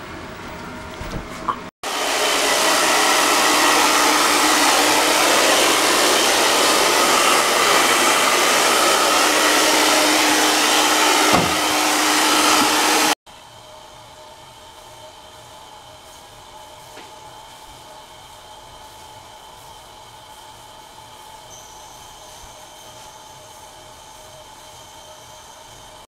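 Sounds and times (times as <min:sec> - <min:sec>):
hair dryer blowing: 0:01.8 - 0:13.2.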